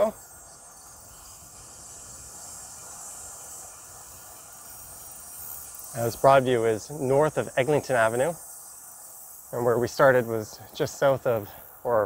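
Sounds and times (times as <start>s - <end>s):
faint high-pitched hiss: 0.0s - 12.0s.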